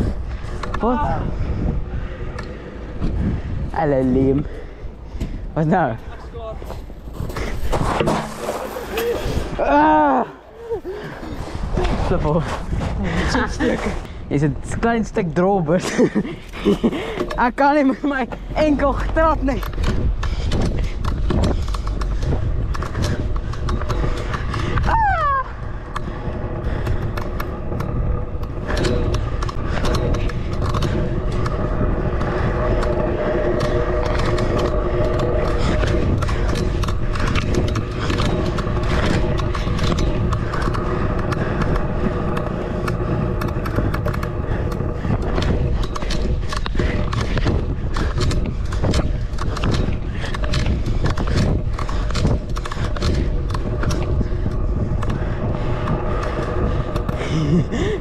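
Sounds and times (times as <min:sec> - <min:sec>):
wind buffeting microphone: 0:00.0 - 0:58.0
rattling clicks: 0:25.9 - 0:58.0.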